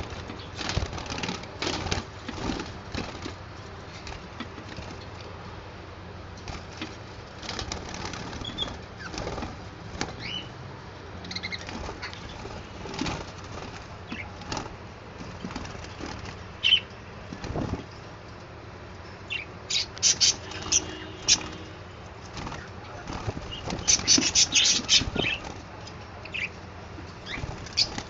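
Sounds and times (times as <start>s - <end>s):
budgerigars chirping: 10.2s - 10.5s, 11.2s - 12.4s, 16.6s - 16.9s, 19.3s - 21.6s, 22.6s - 25.4s, 26.2s - 26.6s, 27.2s - 28.0s.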